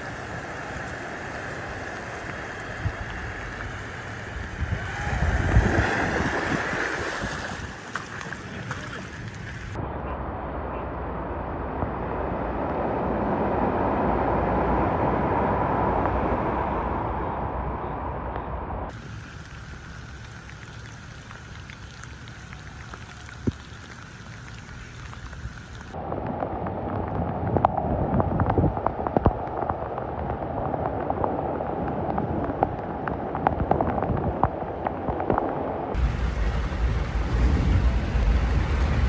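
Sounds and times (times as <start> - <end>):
cars splashing spray: 0.0 - 9.8, 18.9 - 26.0, 36.0 - 39.0
rain falling on flooded street: 0.0 - 9.8, 18.9 - 26.0, 28.4 - 39.0
vehicle driving through floodwater: 0.0 - 9.8, 36.0 - 39.0.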